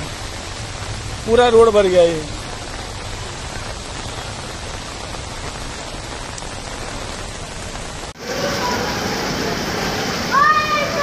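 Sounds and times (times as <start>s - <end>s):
heavy rain hissing: 0.0s - 11.0s
rushing floodwater: 0.0s - 11.0s
faint voices: 8.2s - 11.0s.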